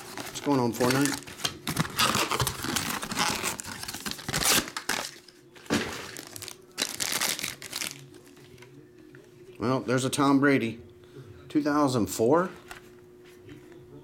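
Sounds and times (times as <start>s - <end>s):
plastic bag crinkling: 0.0s - 5.3s, 5.9s - 8.1s.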